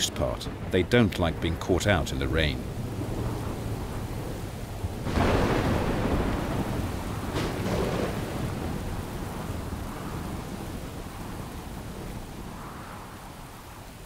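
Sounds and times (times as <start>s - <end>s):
heavy rain hiss: 0.0s - 14.0s
thunder rumbling: 0.0s - 14.0s.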